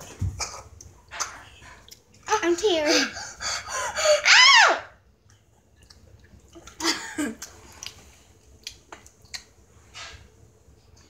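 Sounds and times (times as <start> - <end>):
girl's high-pitched squeal: 4.2 - 5.0.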